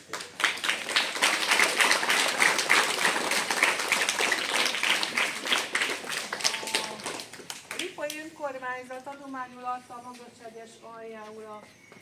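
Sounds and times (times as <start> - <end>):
people applauding: 0.0 - 8.0.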